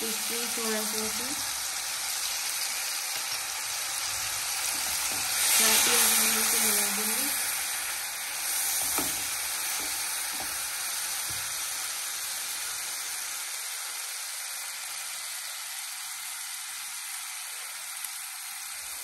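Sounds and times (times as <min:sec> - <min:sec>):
sauce sizzling in hot oil: 0:00.0 - 0:19.0.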